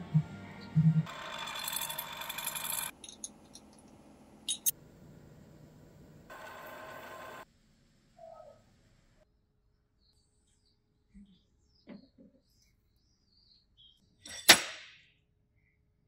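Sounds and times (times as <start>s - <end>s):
milling machine cutting steel: 1.1s - 4.7s, 6.0s - 7.4s.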